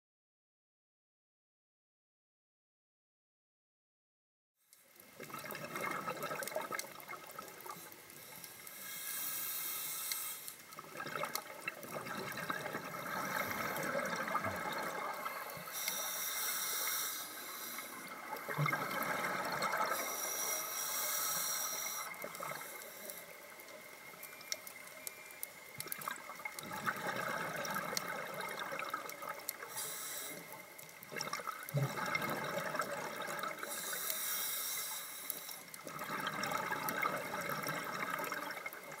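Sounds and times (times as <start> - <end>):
exhaled bubbles gurgling: 5.1 - 8.7, 10.7 - 20.7, 25.7 - 34.1, 35.7 - 39.0
regulator hissing inhalations: 7.7 - 10.7, 15.2 - 18.2, 19.9 - 23.5, 29.6 - 30.7, 33.6 - 35.7.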